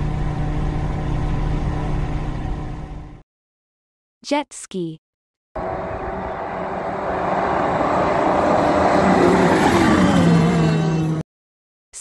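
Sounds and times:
jet ski engine running: 0.0s - 3.2s.

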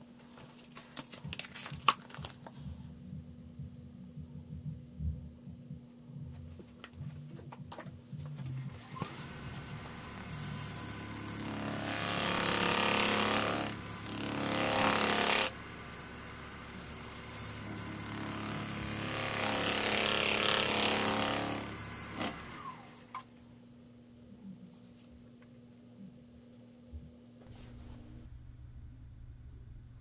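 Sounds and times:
wood lathe humming: 8.9s - 23.1s.

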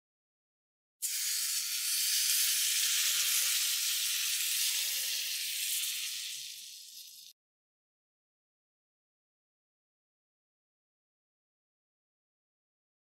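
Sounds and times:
batter sizzling on hot plate: 1.0s - 7.4s.

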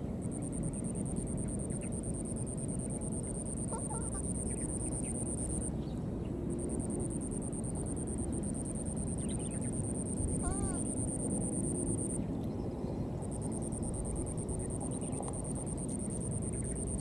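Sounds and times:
low outdoor rumble: 0.0s - 17.0s
insect trilling: 0.4s - 5.7s, 6.6s - 12.2s, 13.2s - 17.0s
faint squeaky calls: 3.6s - 4.7s, 10.4s - 11.0s.

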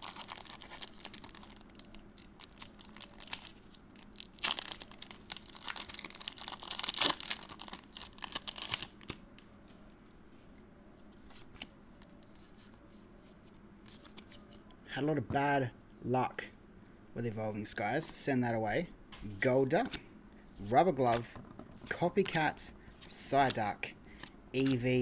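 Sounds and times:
foil wrapper tearing and crinkling: 0.0s - 9.2s.

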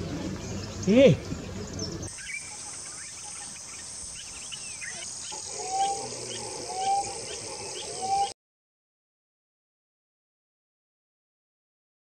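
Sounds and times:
birds calling: 0.0s - 8.4s
high-pitched insect drone: 4.9s - 8.3s.

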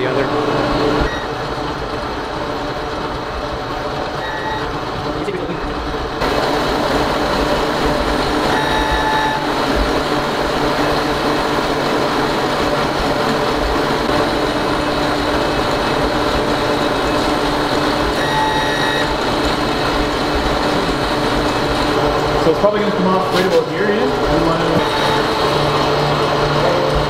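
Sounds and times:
printer mechanical hum: 0.0s - 27.0s
short electronic beep: 1.1s - 1.3s, 4.2s - 4.7s, 8.5s - 9.5s, 18.2s - 19.1s, 24.8s - 25.3s.

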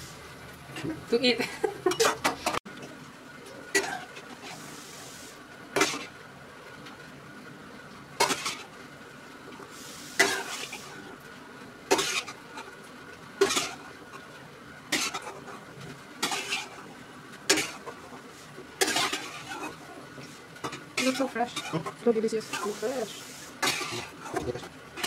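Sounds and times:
metal spatula clinking and scraping: 18.8s - 19.8s, 20.7s - 22.8s.

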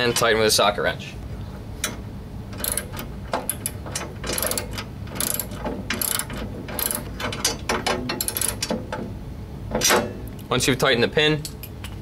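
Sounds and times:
socket wrench ratchet clicking: 2.6s - 7.6s, 8.2s - 8.7s.

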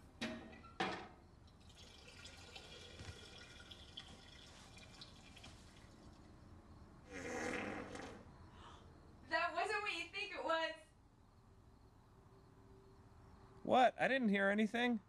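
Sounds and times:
urine splashing into toilet water: 1.4s - 6.6s.

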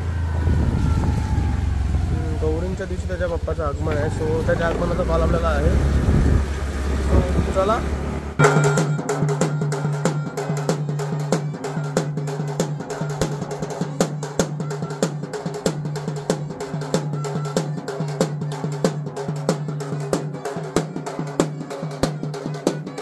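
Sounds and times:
double-headed drums beaten: 1.2s - 23.0s
shehnai melody: 8.0s - 23.0s.

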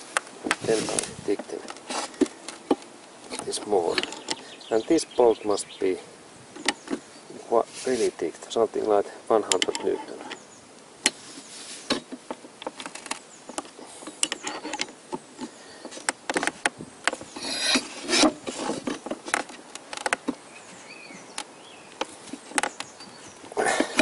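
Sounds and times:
tools clicking on wooden workbench: 9.4s - 10.4s.

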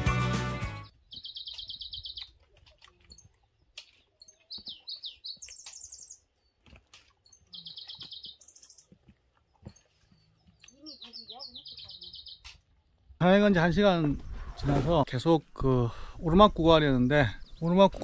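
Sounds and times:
songbird trills: 0.8s - 12.7s
short bird chirps: 1.1s - 2.4s, 4.2s - 6.2s.

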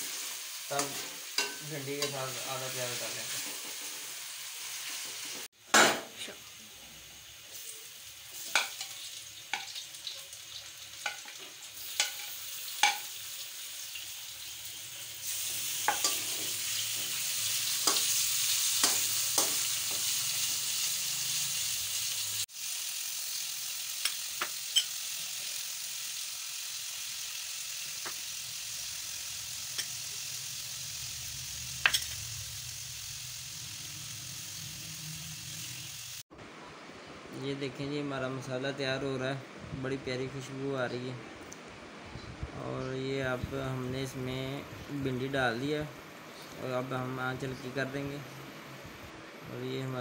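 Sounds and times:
onions sizzling in hot oil: 0.0s - 36.3s.

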